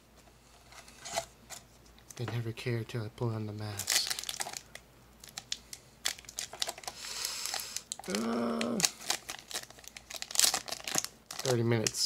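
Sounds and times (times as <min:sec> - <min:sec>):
foil pack crinkling and tearing: 0:03.6 - 0:12.0
person humming: 0:08.0 - 0:09.0.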